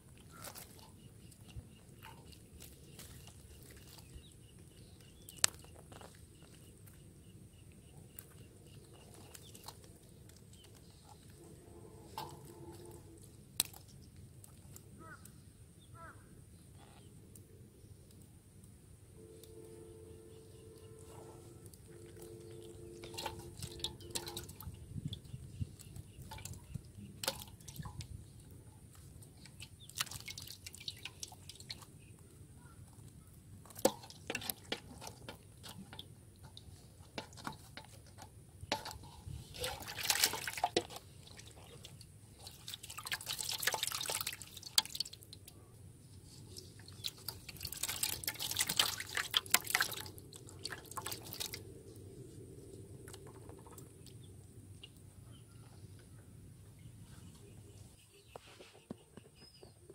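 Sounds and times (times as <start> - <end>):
water dripping into basin: 0.1 - 7.0, 8.1 - 15.3, 19.3 - 32.3, 33.6 - 45.6, 46.5 - 51.8
fish thrashing in water: 21.8 - 28.2, 29.0 - 32.1, 33.6 - 45.4, 46.5 - 51.7.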